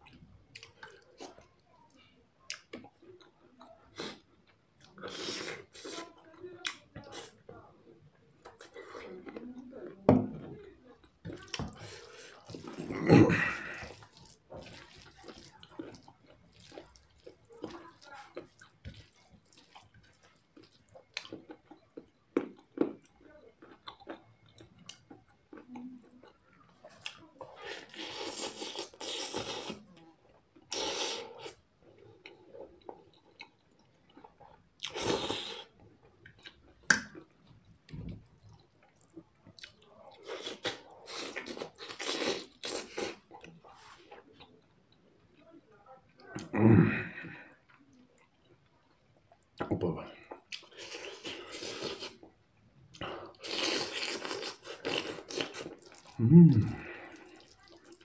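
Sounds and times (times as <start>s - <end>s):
chewing and slurping noodles: 11.0s - 44.6s, 50.3s - 58.0s
sucking noodles in: 30.7s - 31.6s
crunching bites of cabbage: 40.2s - 43.2s, 53.4s - 55.9s.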